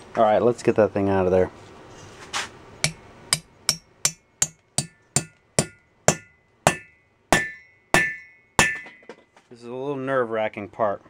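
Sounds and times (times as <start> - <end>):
hammer tapping on metal: 2.8 - 9.2.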